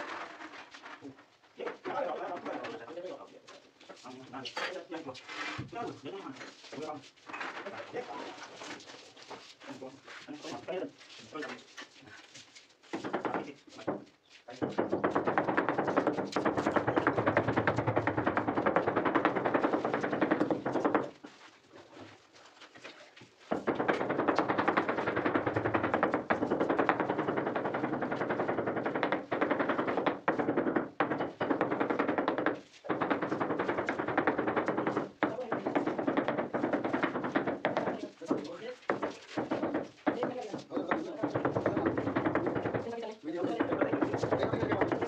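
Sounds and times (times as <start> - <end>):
rattling taps on floor tile: 12.9 - 21.2, 23.5 - 45.0.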